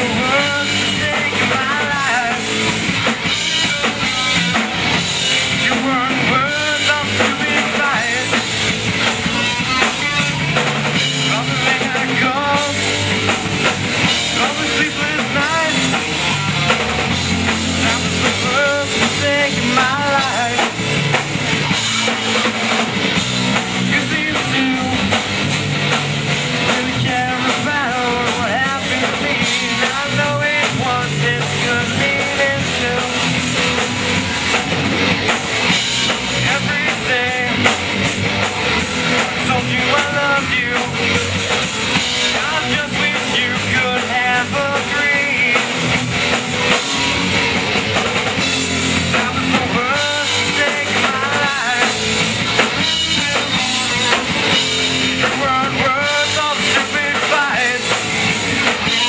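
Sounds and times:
person singing: 0:00.0 - 0:04.8, 0:05.4 - 0:08.5, 0:09.6 - 0:13.1, 0:14.1 - 0:20.8, 0:23.6 - 0:25.3, 0:26.6 - 0:33.6, 0:36.2 - 0:37.8, 0:38.9 - 0:41.3, 0:42.0 - 0:46.0, 0:49.0 - 0:59.0
drum kit: 0:00.0 - 0:59.0
electric guitars: 0:00.0 - 0:59.0.

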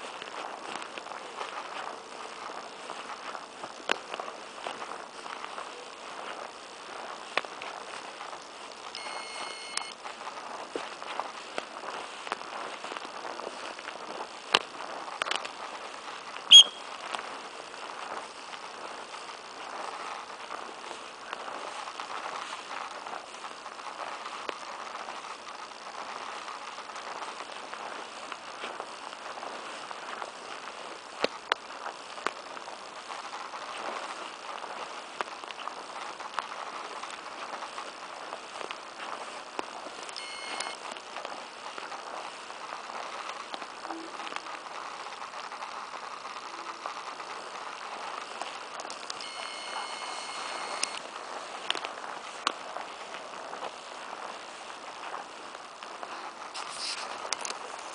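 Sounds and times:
rustling of tall grass: 0:00.0 - 0:57.9
steady high tone: 0:08.9 - 0:10.0, 0:16.5 - 0:16.9, 0:40.2 - 0:40.8, 0:49.2 - 0:51.0.

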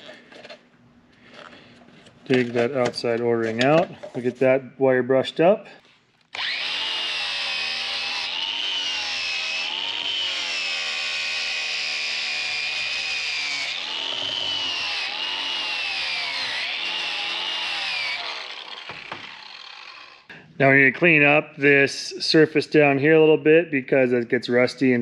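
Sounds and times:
wire wheel grinder scrubbing metal: 0:06.4 - 0:20.3.

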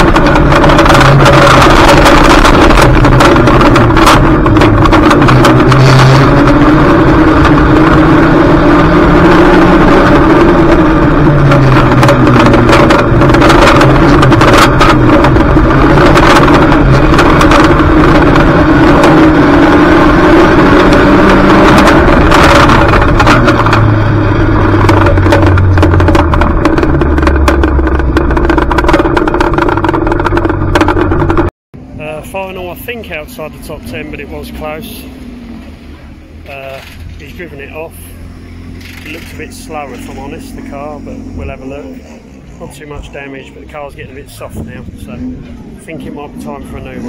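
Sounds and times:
sharp knocks and clatters: 0:00.0 - 0:08.0, 0:10.0 - 0:31.5
race car engine revving: 0:00.0 - 0:47.0.

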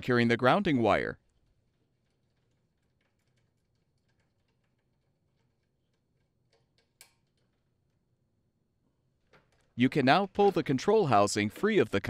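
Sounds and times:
faint clicks of bolt and wire: 0:01.2 - 0:08.1, 0:09.2 - 0:09.8.

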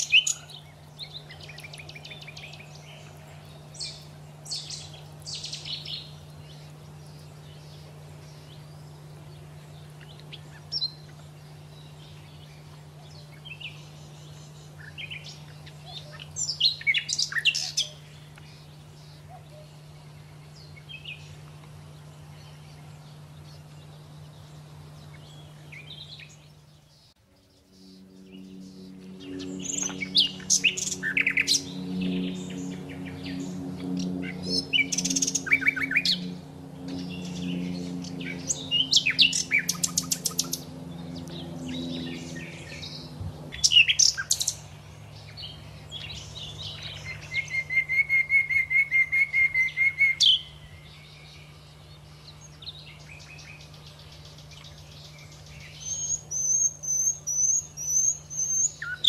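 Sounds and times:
songbirds chirping and singing: 0:00.0 - 0:59.0
steady low hum: 0:00.0 - 0:59.0
deep layered drone: 0:27.2 - 0:47.6.

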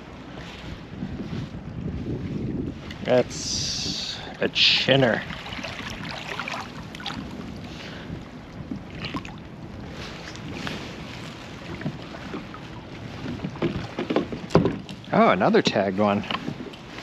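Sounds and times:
water lapping around kayak: 0:00.0 - 0:17.0
wind on microphone: 0:00.0 - 0:17.0
sharp knocks and rattles: 0:13.6 - 0:15.0.

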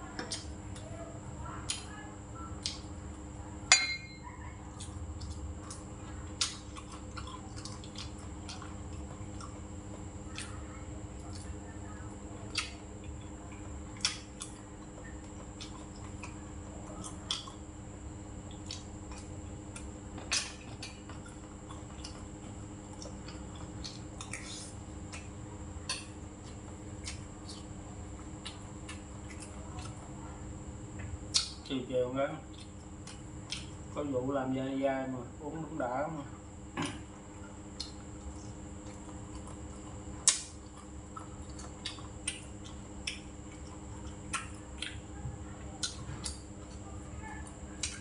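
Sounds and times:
low room hum: 0:00.0 - 0:48.0
utensils clinking on metal bowl: 0:03.7 - 0:04.2.

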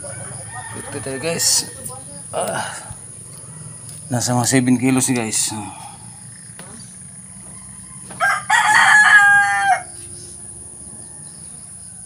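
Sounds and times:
rooster crowing: 0:00.0 - 0:04.0, 0:07.0 - 0:12.0
crickets chirring: 0:00.0 - 0:12.0.

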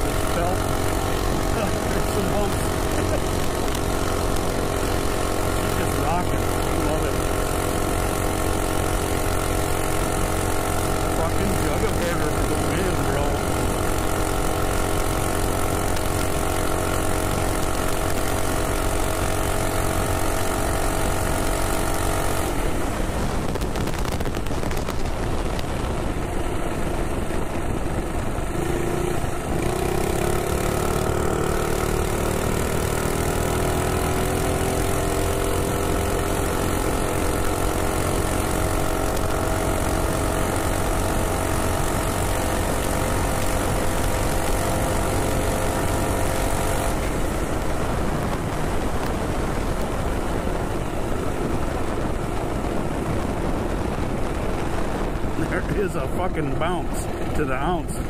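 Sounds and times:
minibike engine running: 0:00.0 - 0:58.0
wind rushing over microphone: 0:22.4 - 0:30.0, 0:44.6 - 0:58.0.

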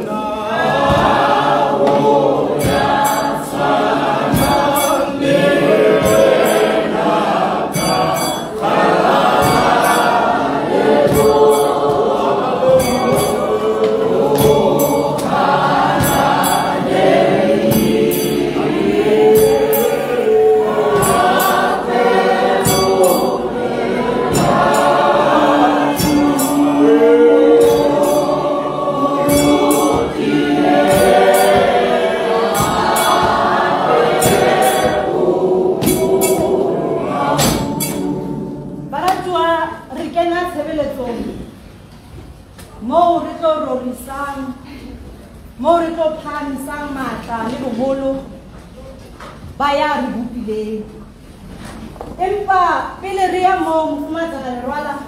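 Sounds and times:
choir singing gospel song: 0:00.0 - 0:40.1.

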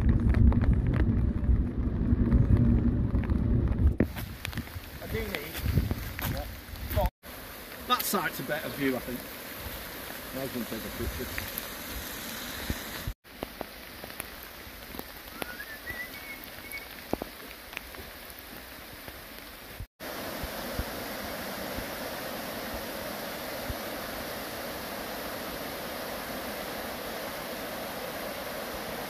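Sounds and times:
raindrop taps: 0:00.0 - 0:01.7, 0:02.3 - 0:07.1, 0:07.7 - 0:08.4, 0:12.6 - 0:19.2
steady rain: 0:00.0 - 0:29.0
river rushing: 0:20.0 - 0:29.0.

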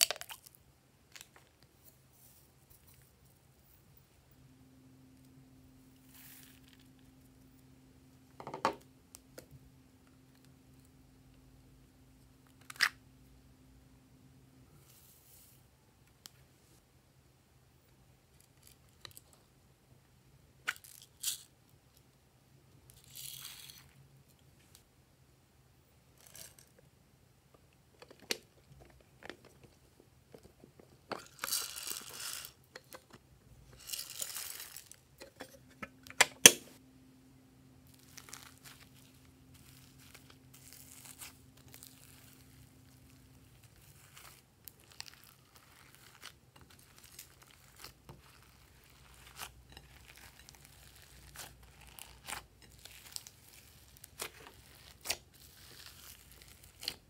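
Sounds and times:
foam clay crinkling and crunching: 0:06.0 - 0:07.1, 0:33.6 - 0:35.1, 0:37.8 - 0:57.0.

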